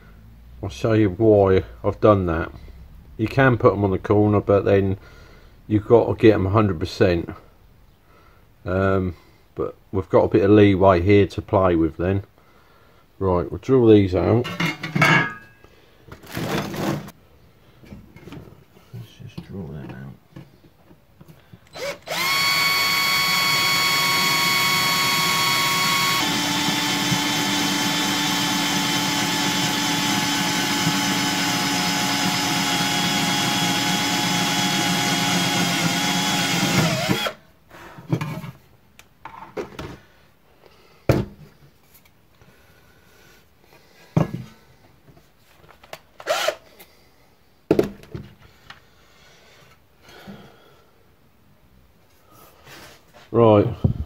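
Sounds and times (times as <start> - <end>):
cordless drill drilling sheet metal: 21.7 - 37.4, 46.2 - 46.6.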